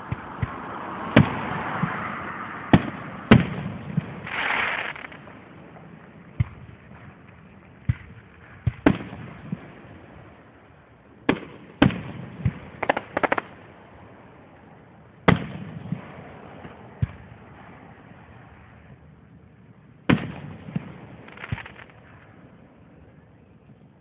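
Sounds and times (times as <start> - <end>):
crackling pops: 4.2 - 5.4, 12.8 - 13.5, 20.8 - 22.1
firework shells bursting: 4.2 - 5.4, 12.8 - 13.5, 21.2 - 22.1.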